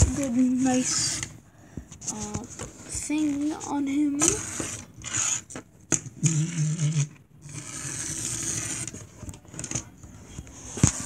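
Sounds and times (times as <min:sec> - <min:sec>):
toy wheels scraping on desk: 0:00.0 - 0:01.4, 0:02.0 - 0:11.0
toy spring motor whirring: 0:00.6 - 0:01.4, 0:04.2 - 0:09.0.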